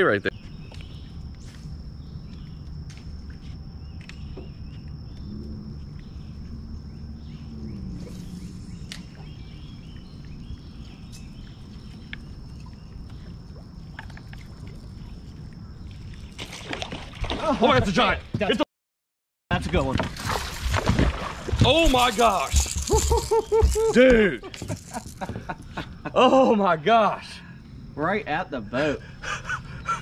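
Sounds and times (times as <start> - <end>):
bird chirps: 0.2 - 2.6, 3.4 - 16.4
low hum: 0.6 - 17.3.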